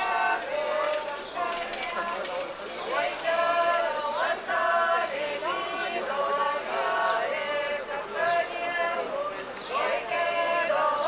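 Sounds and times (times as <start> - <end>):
women singing a cappella: 0.0 - 11.0.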